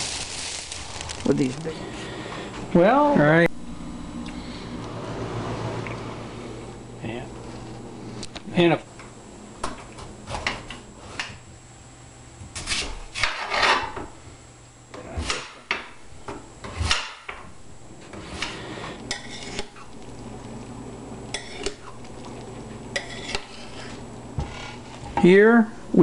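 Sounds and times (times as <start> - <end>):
knife scraping through squash rind: 12.6 - 13.9, 18.2 - 19.8, 22.9 - 25.0.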